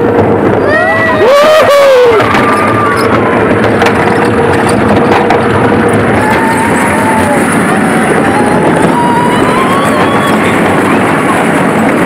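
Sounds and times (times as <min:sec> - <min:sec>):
rush of wind and track noise: 0:00.0 - 0:12.0.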